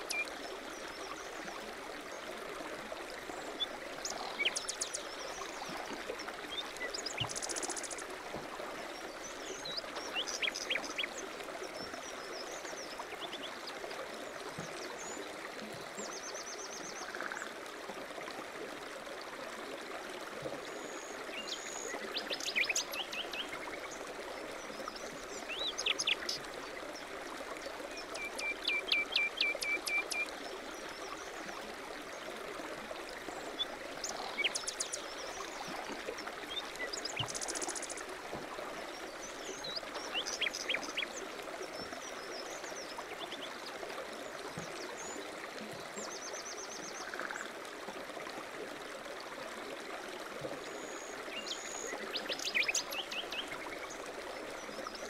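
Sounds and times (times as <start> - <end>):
running water: 0.0 - 55.0
songbirds chirping: 3.0 - 17.3, 20.7 - 47.5.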